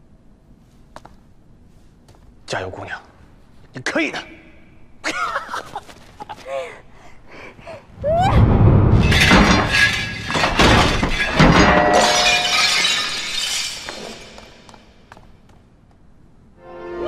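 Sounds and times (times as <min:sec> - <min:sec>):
flowerpot crashing and shattering: 0:08.9 - 0:14.7.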